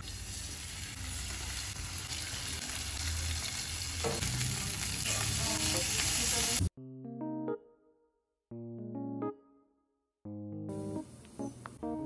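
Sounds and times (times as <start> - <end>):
meat sizzling in hot oil: 0.0 - 6.7.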